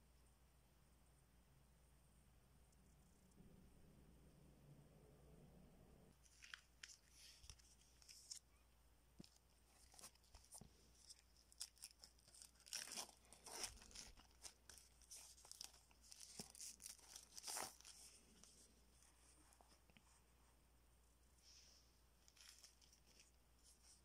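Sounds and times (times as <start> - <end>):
plastic shrink-wrap crinkling: 6.2 - 8.5, 9.2 - 18.6.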